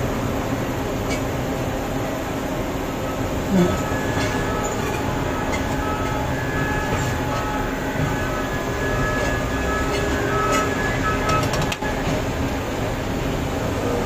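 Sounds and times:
mining machinery engine drone: 0:00.0 - 0:14.0
faint high whine: 0:03.0 - 0:14.0.

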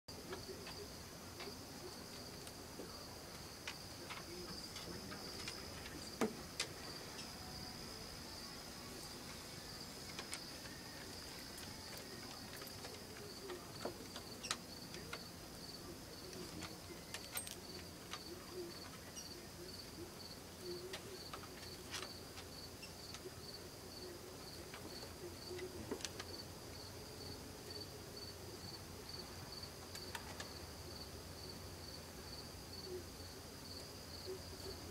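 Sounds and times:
insects trilling: 0:00.1 - 0:34.9.

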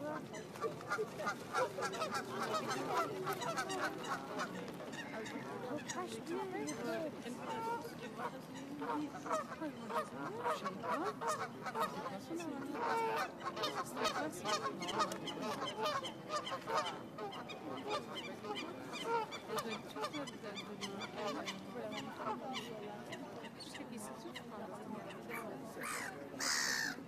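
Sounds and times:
geese honking: 0:25.8 - 0:27.0.

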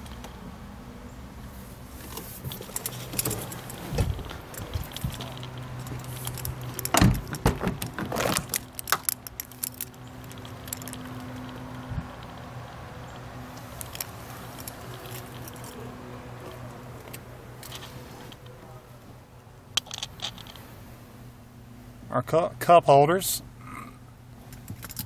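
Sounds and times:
car door clunk: 0:02.0 - 0:09.1
door latch clicks and rattles: 0:06.3 - 0:11.0.

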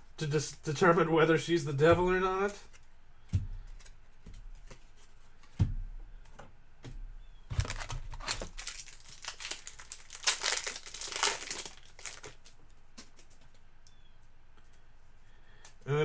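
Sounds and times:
trading card packaging crinkling: 0:07.5 - 0:13.4.

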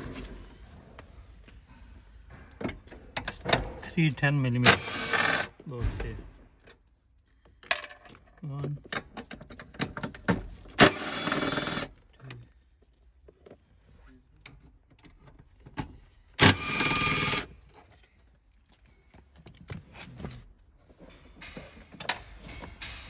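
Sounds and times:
cordless power tool running: 0:04.7 - 0:05.5, 0:10.8 - 0:11.9, 0:16.4 - 0:17.5.

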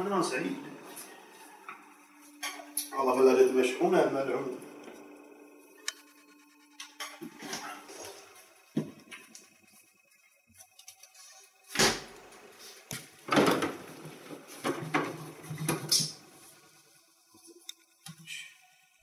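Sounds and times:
food and containers rustling and clattering: 0:10.5 - 0:16.6.

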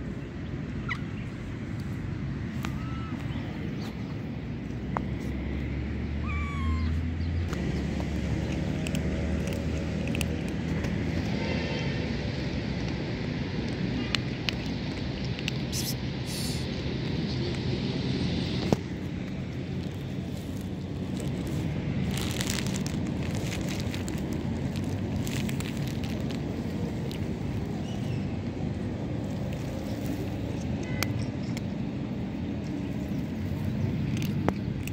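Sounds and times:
low outdoor rumble: 0:00.0 - 0:34.9
cat eating dry kibble: 0:07.5 - 0:34.9
plastic bag crinkling: 0:19.6 - 0:27.8.

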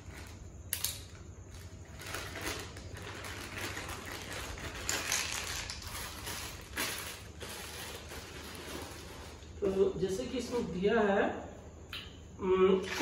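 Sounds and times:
plastic connectors on tile floor: 0:00.0 - 0:09.6
plastic bag crinkling: 0:00.0 - 0:10.4.

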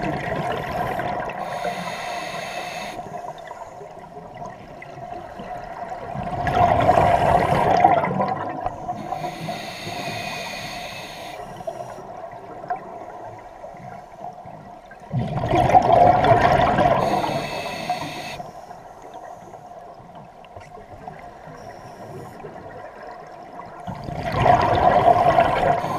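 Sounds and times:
exhaled bubbles rushing: 0:00.0 - 0:01.4, 0:04.4 - 0:08.8, 0:15.1 - 0:17.3, 0:23.8 - 0:25.9
regulator inhale hiss: 0:00.7 - 0:03.8, 0:08.7 - 0:12.1, 0:17.0 - 0:19.7, 0:25.2 - 0:25.9.

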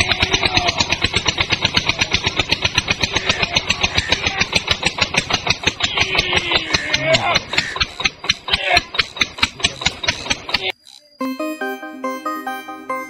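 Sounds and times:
tractor engine idling: 0:00.0 - 0:10.8.

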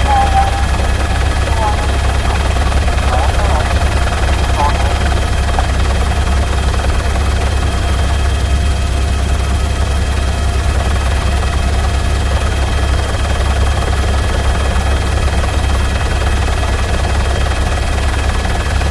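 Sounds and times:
faint whine: 0:00.0 - 0:06.1
helicopter rotor drone: 0:00.0 - 0:18.9.

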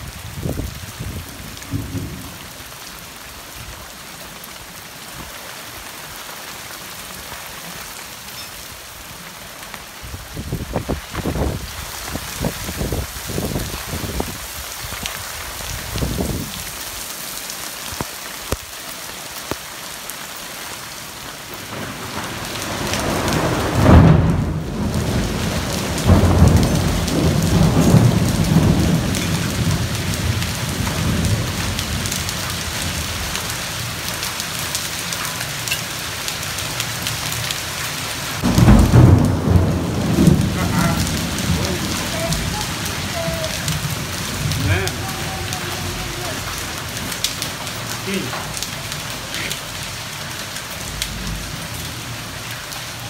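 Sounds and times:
thunder rumbling: 0:00.0 - 0:03.8, 0:21.6 - 0:34.2, 0:38.4 - 0:53.0
heavy rain pouring: 0:00.0 - 0:53.0.

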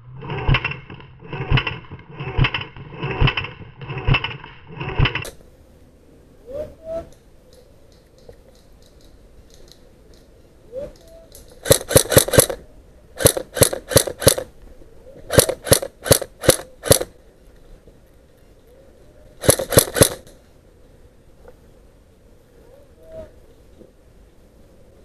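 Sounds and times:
airsoft rifle firing: 0:11.6 - 0:12.6, 0:13.2 - 0:14.5, 0:15.3 - 0:17.2, 0:19.4 - 0:20.4.

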